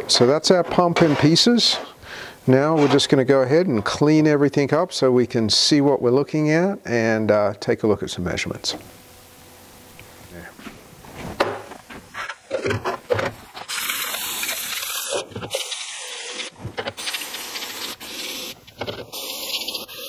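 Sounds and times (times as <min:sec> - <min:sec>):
aerosol spray hissing: 0:13.6 - 0:20.0.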